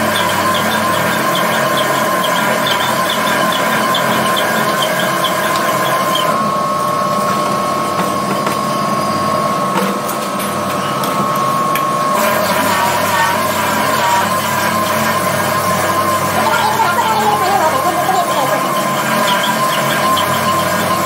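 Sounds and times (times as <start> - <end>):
machine tool squealing on metal: 0.0 - 6.4, 12.2 - 21.0.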